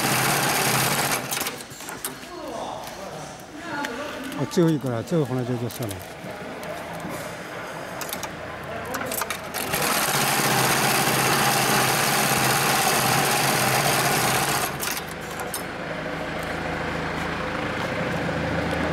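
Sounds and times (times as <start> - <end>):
sewing machine stitching: 0.0 - 1.8, 8.9 - 15.6.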